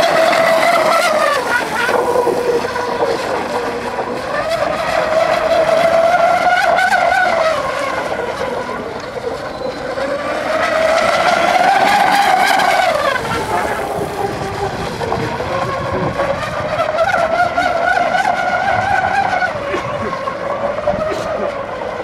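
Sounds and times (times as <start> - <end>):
model boat motor whining: 0.0 - 22.0.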